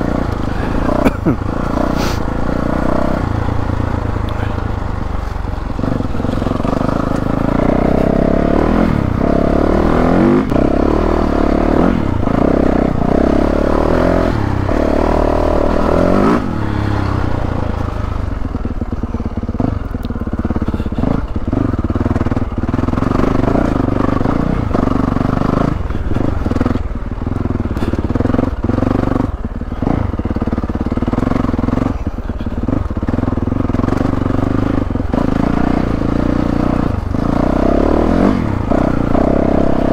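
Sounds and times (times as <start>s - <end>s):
motorcycle engine revving: 0.0s - 39.9s
knocks and clatter of bike: 16.1s - 39.9s.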